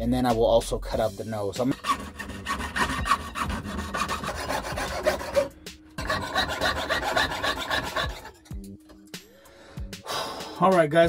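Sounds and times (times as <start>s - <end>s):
saw cutting sheet metal: 1.6s - 8.5s.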